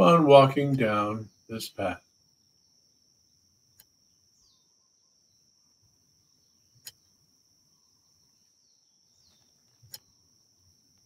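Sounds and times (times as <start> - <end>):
insect trill: 0.0 - 11.0
soft clicks: 9.3 - 10.1.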